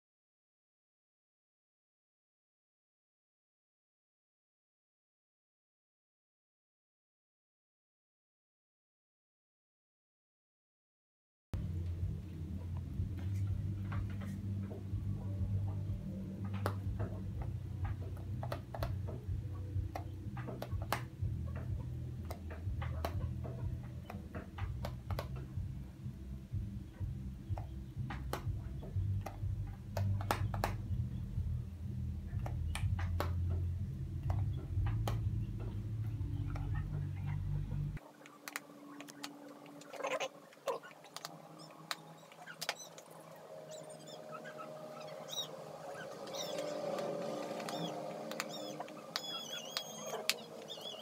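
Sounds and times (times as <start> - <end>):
steady low hum: 11.6 - 51.0.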